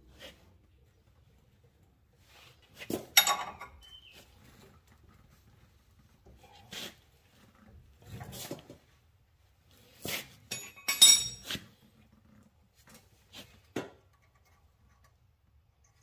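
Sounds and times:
metal tools clinking: 0:03.2 - 0:03.9, 0:10.5 - 0:11.6.

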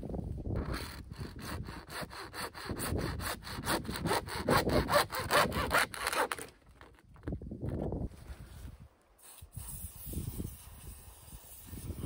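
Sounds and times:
handsaw cutting plastic pipe: 0:00.6 - 0:07.0.

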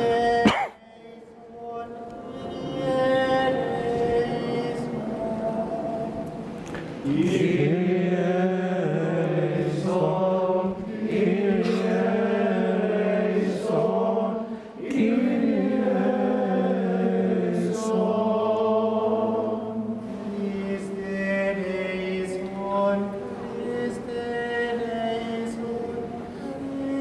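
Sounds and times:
group singing chant in unison: 0:00.0 - 0:27.0
singers breathing: 0:14.4 - 0:14.8.

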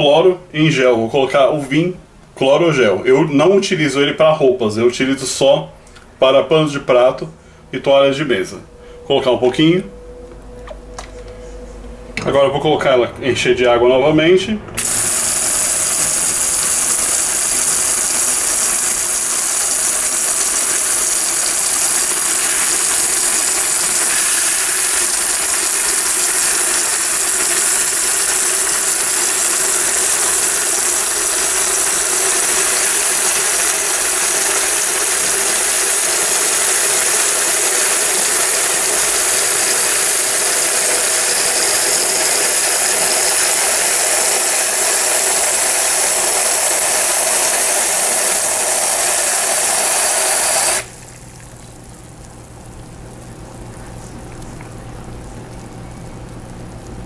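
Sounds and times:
water rushing into washing machine: 0:14.8 - 0:53.4.

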